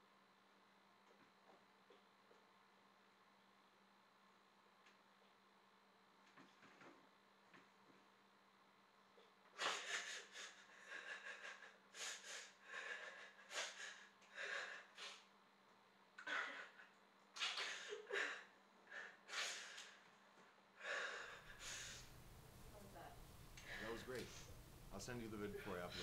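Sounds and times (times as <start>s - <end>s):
person sobbing: 9.6s - 15.0s, 16.2s - 16.9s.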